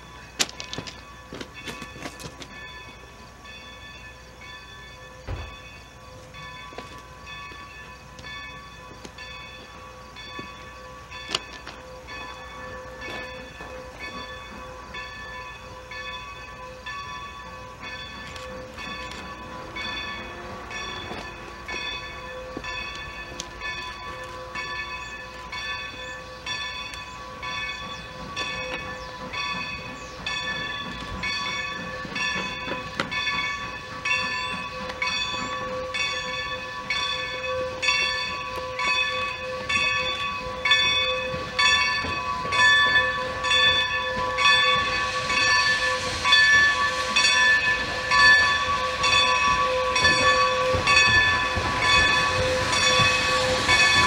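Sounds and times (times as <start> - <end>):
steam locomotive bell ringing: 0.0 - 54.0.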